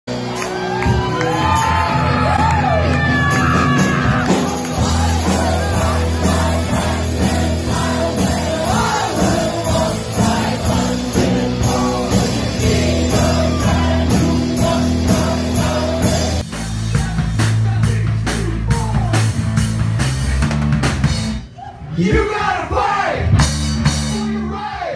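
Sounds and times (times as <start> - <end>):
rock band playing: 0.1 - 21.6, 22.2 - 24.9
low bass notes: 1.0 - 21.5, 22.5 - 24.8
person singing: 3.5 - 19.4.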